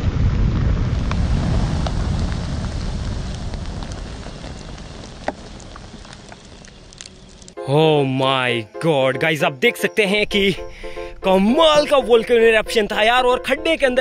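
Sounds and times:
sparklers crackling: 0:00.0 - 0:07.6
sparklers hissing and rumbling: 0:00.0 - 0:07.6.

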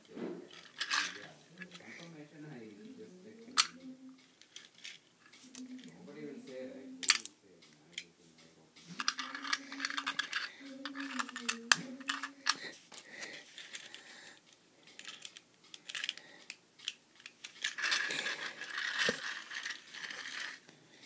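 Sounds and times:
plastic toy cars clicking: 0:00.5 - 0:02.1, 0:03.6 - 0:05.9, 0:07.0 - 0:08.1, 0:08.9 - 0:20.7
rattling and rustling: 0:14.9 - 0:20.7.

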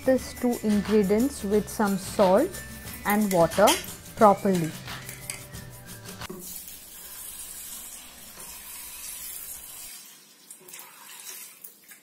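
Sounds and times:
water pouring over grains: 0:06.3 - 0:12.0.

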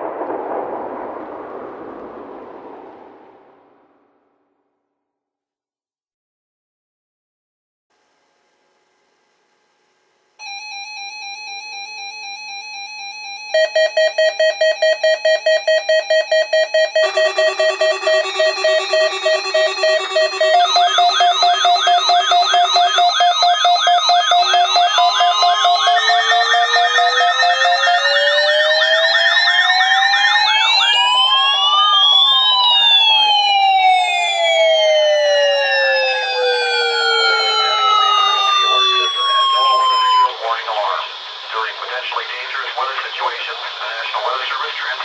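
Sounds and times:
slow wailing alarm: 0:10.4 - 0:40.4
fast warbling alarm tone: 0:10.4 - 0:41.7
low pulsing beep: 0:13.5 - 0:40.4
pulsed alert beeps: 0:13.6 - 0:33.2, 0:35.5 - 0:40.3
louder lower-pitched beep: 0:13.6 - 0:33.6, 0:34.3 - 0:40.3.

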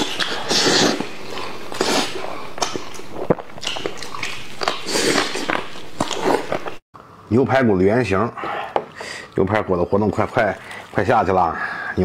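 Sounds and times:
man chewing and slurping: 0:00.0 - 0:06.8.

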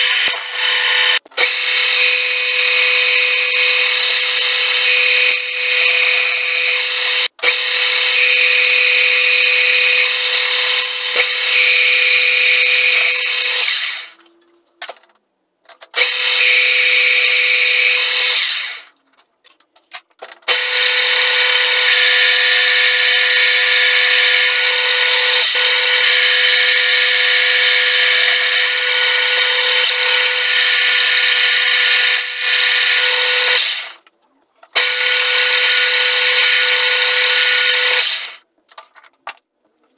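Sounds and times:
metal lathe whine: 0:00.0 - 0:14.2, 0:20.5 - 0:34.0.

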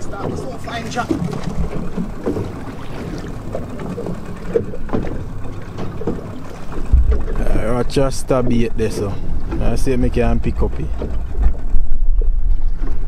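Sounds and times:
low rumble of water: 0:00.0 - 0:13.0
knocks against boat hull: 0:03.9 - 0:07.5.

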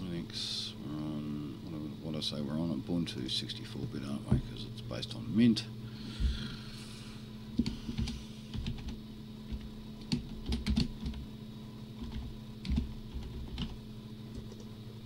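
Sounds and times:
steady low hum: 0:00.0 - 0:15.0
typing on computer keyboard: 0:07.6 - 0:11.2, 0:12.0 - 0:13.8.

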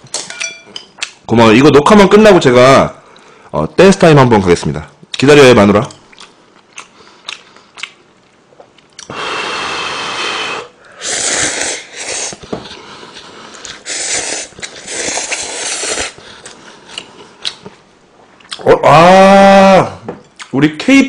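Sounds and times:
person slurping noodles: 0:09.0 - 0:16.5.

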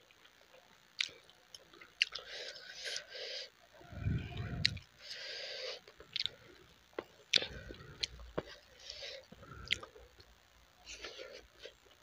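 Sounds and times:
close-miked chewing: 0:00.2 - 0:03.1, 0:05.6 - 0:10.3.

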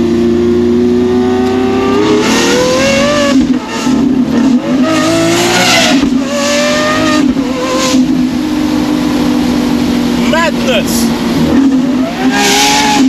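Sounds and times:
car engine at full throttle: 0:00.0 - 0:13.0.

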